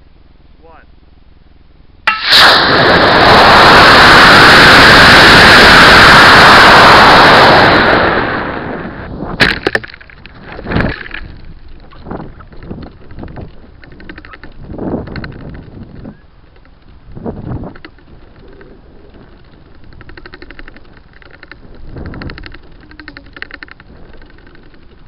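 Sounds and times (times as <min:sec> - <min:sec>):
sharp pop: 0:02.1 - 0:03.2, 0:09.3 - 0:10.1
gusty wind noise: 0:02.1 - 0:25.0
rocket motor rushing: 0:02.1 - 0:25.0.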